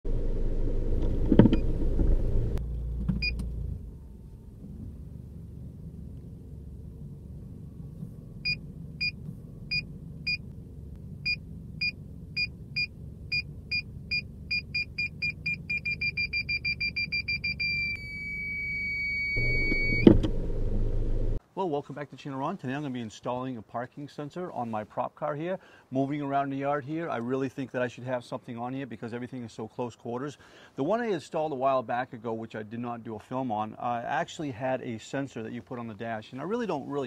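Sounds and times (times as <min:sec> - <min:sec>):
low vehicle rumble: 0:00.0 - 0:21.4
parking sensor beeping: 0:01.4 - 0:01.8, 0:03.2 - 0:03.5, 0:08.2 - 0:10.5, 0:11.2 - 0:20.9.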